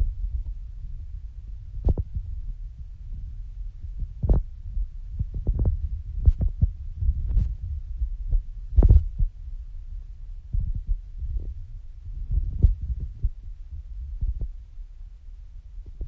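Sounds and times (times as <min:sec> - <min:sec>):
wind buffeting the microphone: 0:00.0 - 0:14.8.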